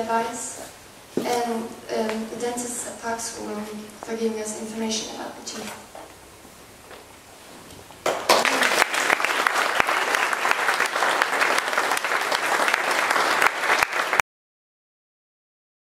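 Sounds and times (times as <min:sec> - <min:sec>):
audience applauding: 0:08.0 - 0:14.2.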